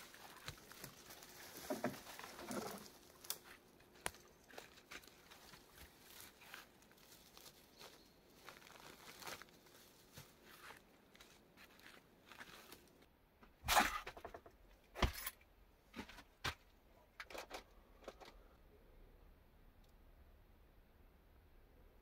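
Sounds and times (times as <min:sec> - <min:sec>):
dry branches and leaves crackling: 0:00.0 - 0:13.1.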